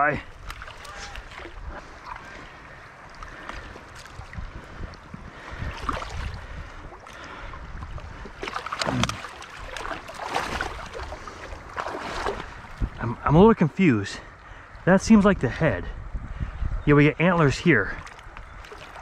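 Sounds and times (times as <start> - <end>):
river running: 0.0 - 15.8, 16.9 - 19.0
hands splashing in water: 8.3 - 12.6.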